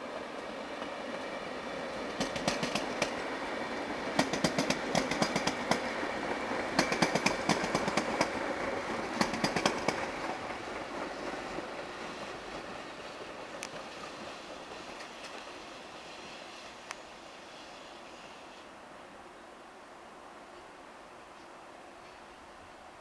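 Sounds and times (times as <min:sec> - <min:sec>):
electric train rumble: 0:00.0 - 0:19.2
train wheels clicking over rail joints: 0:00.2 - 0:16.9.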